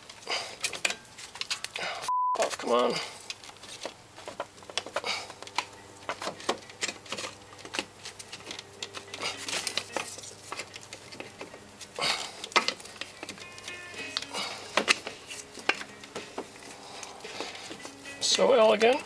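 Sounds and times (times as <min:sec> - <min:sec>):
clicks and knocks of metal fittings: 0:00.0 - 0:01.8, 0:12.4 - 0:16.2
rubber hoses rustling: 0:00.0 - 0:19.0.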